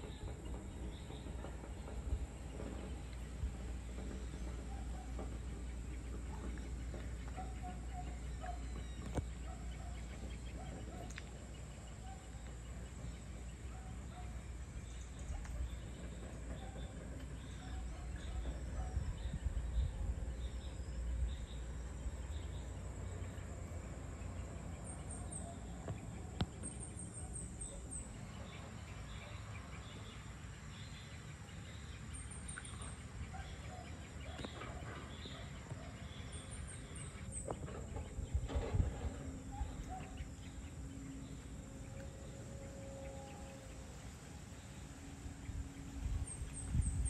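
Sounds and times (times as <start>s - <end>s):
birds calling: 0.0s - 47.0s
insects calling: 0.0s - 47.0s
steady low rumble: 0.0s - 47.0s.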